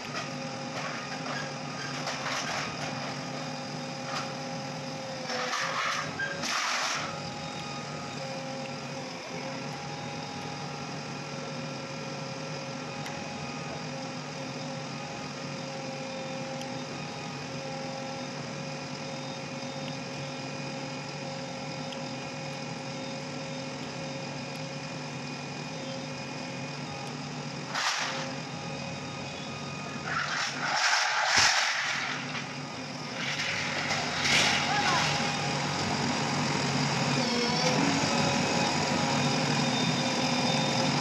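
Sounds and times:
diesel engine running: 19.2s - 41.0s
steel sheets set down loudly: 30.2s - 32.2s.

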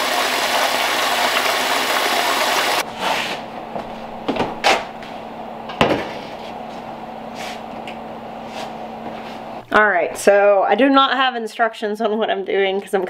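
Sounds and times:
water running from a tap: 0.0s - 2.8s.

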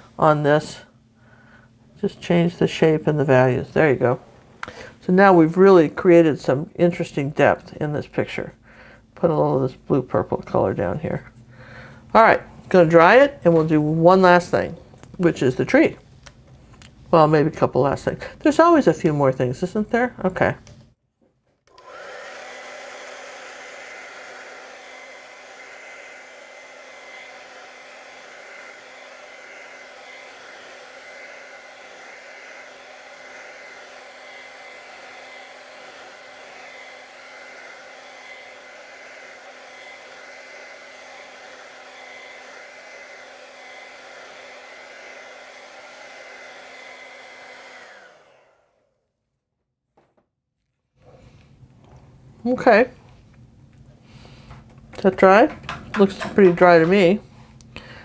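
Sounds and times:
hair dryer running: 2.1s - 6.0s, 21.7s - 49.0s, 54.6s - 58.0s.

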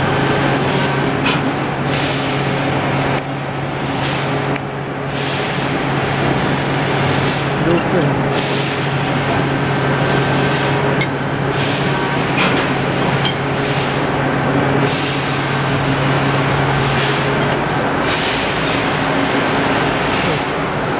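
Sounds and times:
workshop machine noise: 0.0s - 20.9s
press brake humming: 5.6s - 20.9s.

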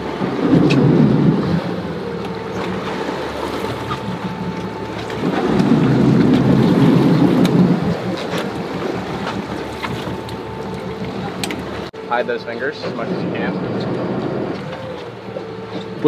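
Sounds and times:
boat engine hum: 0.0s - 16.0s
wind rumbling on microphone: 0.0s - 16.0s.

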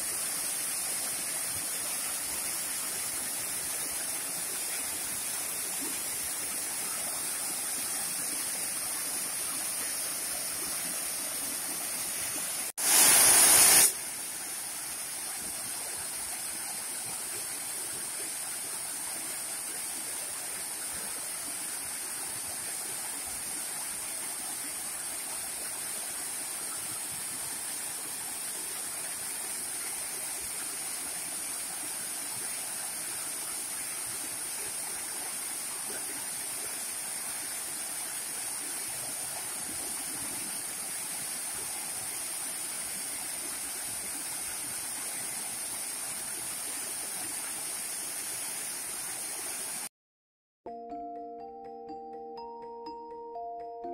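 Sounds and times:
waterfall rushing over rocks: 0.0s - 49.9s.

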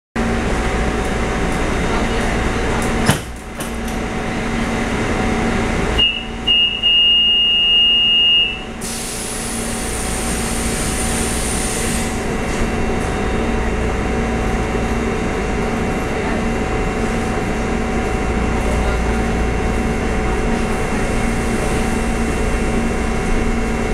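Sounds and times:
electric train humming: 0.2s - 23.9s
faint high whistle: 6.0s - 8.6s
air hissing: 8.8s - 12.2s.

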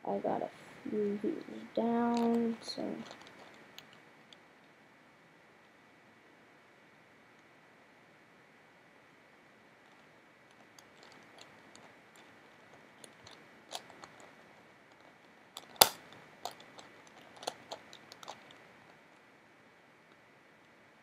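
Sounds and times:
plastic puzzle clicking when twisted: 2.1s - 4.0s, 10.8s - 12.3s, 13.0s - 14.3s, 14.9s - 18.6s.

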